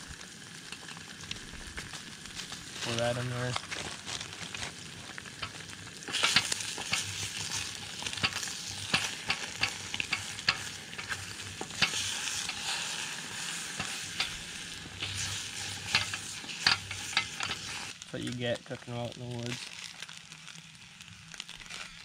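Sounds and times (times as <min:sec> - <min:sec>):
eggs sizzling in frying pan: 0:00.0 - 0:22.0
spatula scraping pan: 0:05.4 - 0:17.9.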